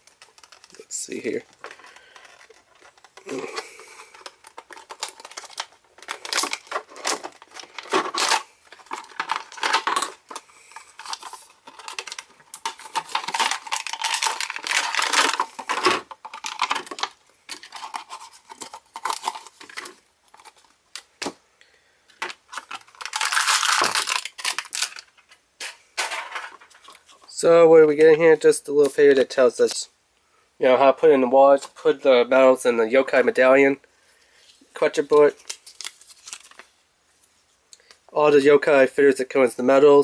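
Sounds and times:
plastic packaging crackling: 0.0s - 21.4s, 22.1s - 27.4s, 34.9s - 36.7s.

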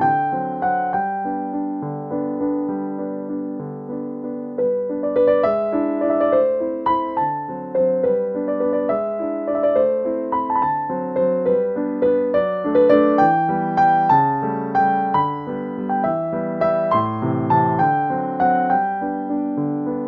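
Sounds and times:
gentle piano music: 0.0s - 20.0s.

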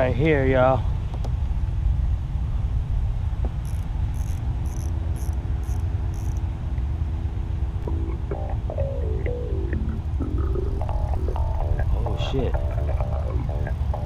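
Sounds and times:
faint low hum: 0.0s - 14.0s
wind rumbling on microphone: 0.0s - 14.0s
insect chirping: 3.5s - 6.5s.

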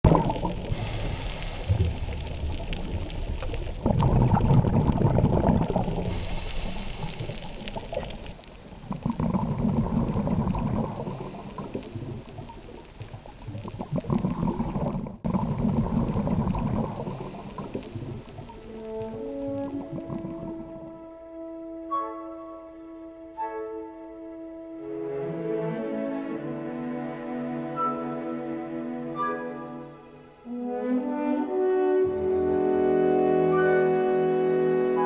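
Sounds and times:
rushing bubbling water: 0.0s - 21.0s.

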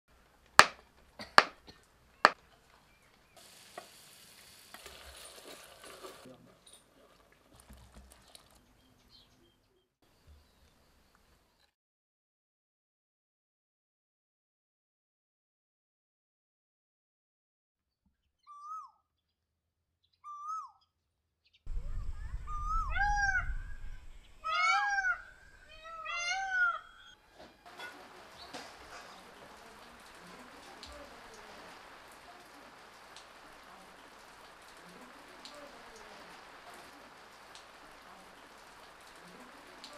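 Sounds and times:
rain-like hiss: 0.2s - 7.2s, 21.7s - 26.8s, 27.6s - 39.9s
onion sizzling in oil: 3.3s - 6.3s, 27.6s - 39.9s
low rumble: 21.7s - 25.9s
bird hooting calls: 21.7s - 29.2s.

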